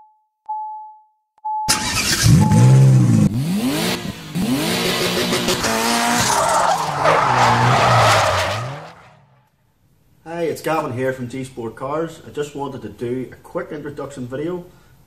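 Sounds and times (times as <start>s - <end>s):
car engine revving: 1.7s - 9.3s
tyre screech: 5.5s - 9.3s.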